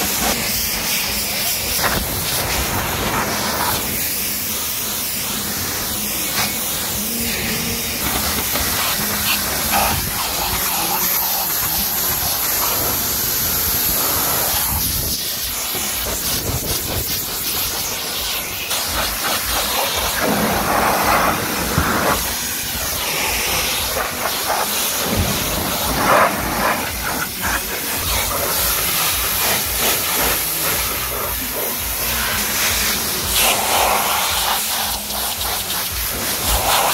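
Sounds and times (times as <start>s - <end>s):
pressure washer jet hissing on car: 0.0s - 36.9s.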